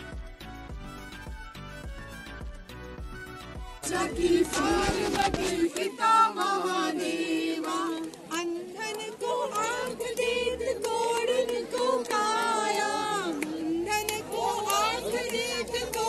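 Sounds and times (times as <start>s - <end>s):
devotional chant-like singing: 3.8s - 16.0s.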